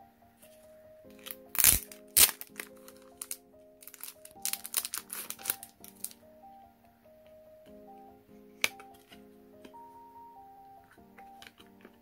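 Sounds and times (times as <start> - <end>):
background music: 0.0 - 12.0
packaging crinkling: 1.1 - 6.2
packaging snapping: 1.1 - 6.2.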